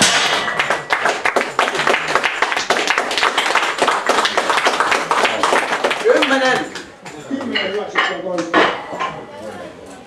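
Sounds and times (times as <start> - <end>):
people clapping: 0.0 - 7.0.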